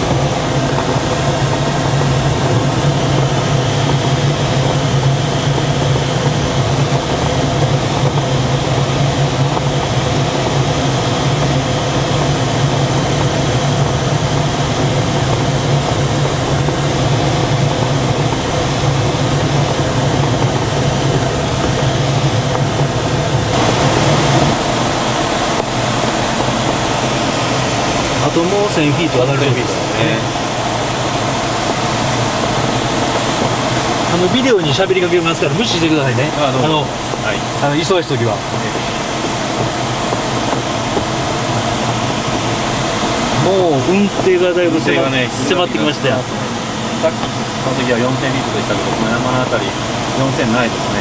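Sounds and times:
airflow rushing over canopy: 0.0 - 51.0
plane engine and propeller drone: 0.0 - 51.0.

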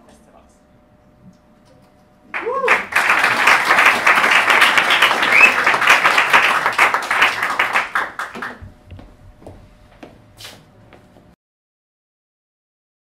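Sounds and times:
audience applauding: 2.3 - 8.6.

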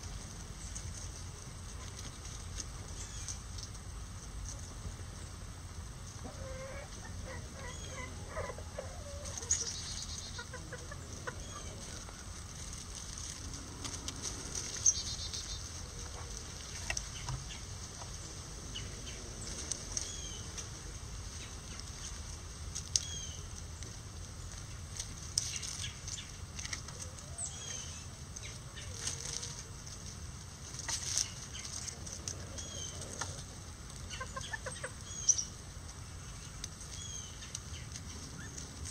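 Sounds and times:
chickens clucking: 0.0 - 38.9.

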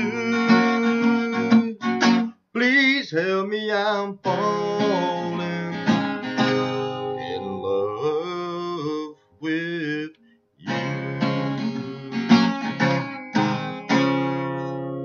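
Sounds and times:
acoustic guitar strumming: 0.0 - 2.8, 3.8 - 8.6, 10.6 - 15.0
person singing with vibrato: 0.0 - 12.8.

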